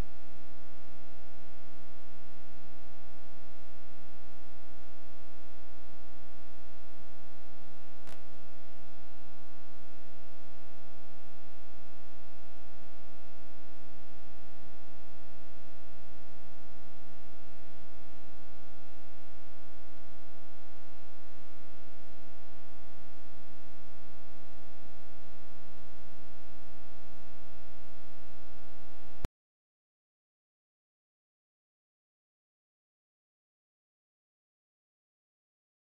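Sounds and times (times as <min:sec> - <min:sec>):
electrical mains hum: 0:00.0 - 0:29.3
sharp click: 0:08.0 - 0:08.3.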